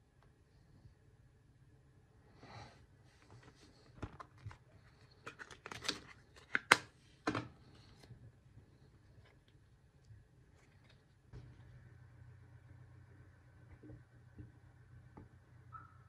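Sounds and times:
plastic packaging crinkling: 3.8 - 6.8.

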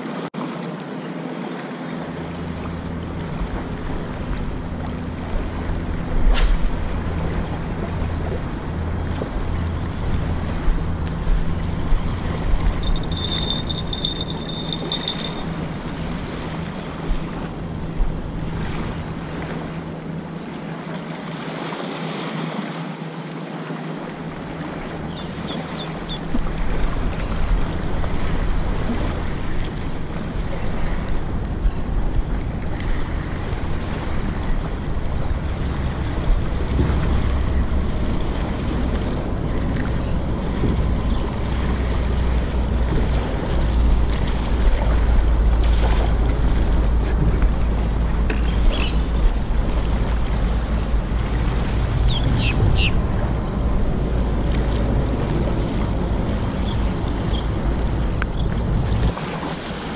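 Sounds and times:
small waves lapping on sand: 0.0 - 59.9
wind buffeting microphone: 26.0 - 59.9.

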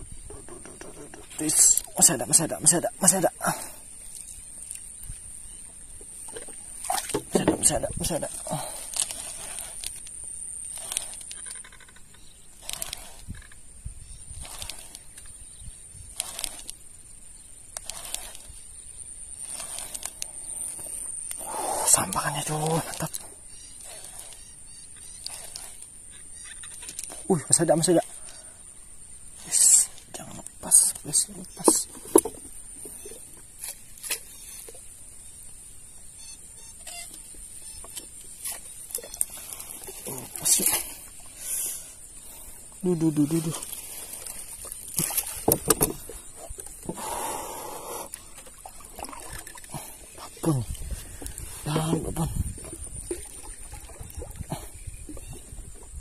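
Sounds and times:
insects trilling: 0.0 - 56.0
paddle knocking against canoe hull: 5.9 - 8.0, 44.6 - 47.2.

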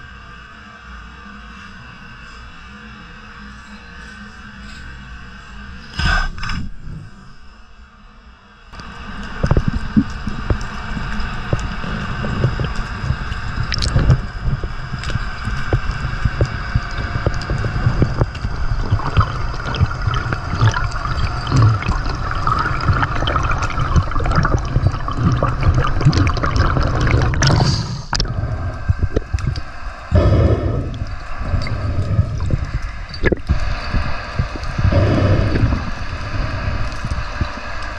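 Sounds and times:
clicks and crackles: 8.8 - 30.1
water rushing underwater: 8.8 - 37.9.

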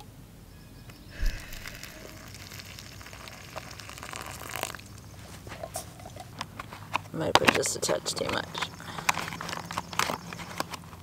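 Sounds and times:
thump of pour beginning: 1.2 - 2.4
water pouring into a pouch: 1.2 - 5.2
foil pouch crinkling: 1.2 - 11.0.

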